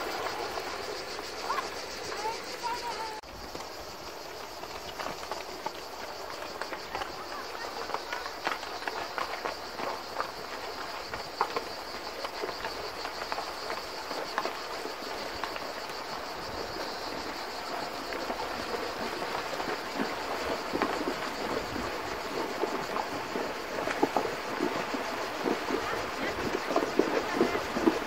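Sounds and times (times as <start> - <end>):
high insect buzz: 0.0 - 6.0
hooves knocking on stones: 0.0 - 28.0
hooves splashing in water: 0.0 - 28.0.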